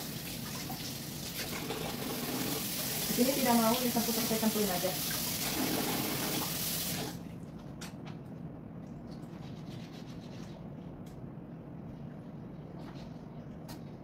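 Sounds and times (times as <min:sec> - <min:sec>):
tap water running: 0:00.0 - 0:07.2.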